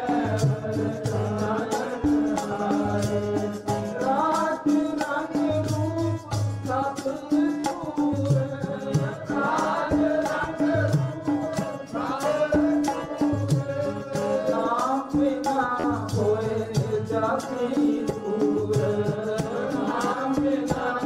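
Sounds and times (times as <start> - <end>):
harmonium: 0.0 - 21.0
men singing a hymn: 0.0 - 21.0
tabla: 0.0 - 21.0.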